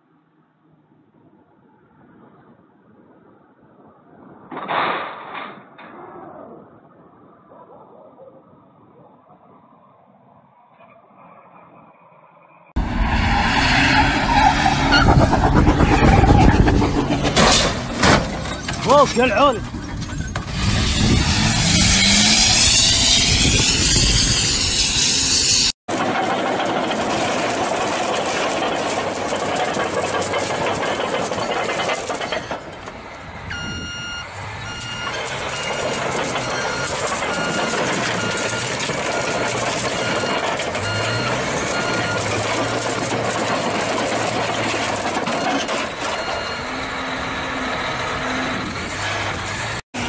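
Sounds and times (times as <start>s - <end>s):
road noise: 0.0s - 50.0s
engine running: 12.8s - 50.0s
reversing alarm beeping: 14.8s - 15.2s, 33.5s - 42.8s, 45.3s - 48.4s.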